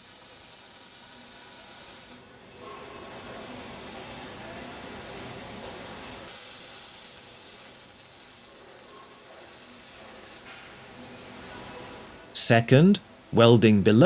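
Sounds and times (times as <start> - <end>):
welding arc crackling hiss: 0.0 - 2.3, 6.0 - 10.5.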